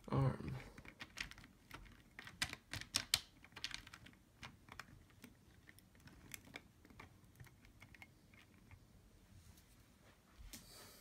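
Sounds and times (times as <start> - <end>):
plastic knobs and gears clicking: 0.0 - 9.0.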